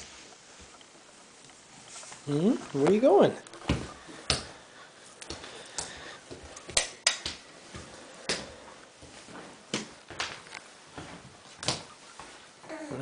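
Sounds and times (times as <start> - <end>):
hands slapping wooden floor: 3.6 - 4.6, 5.2 - 10.4, 11.6 - 12.3.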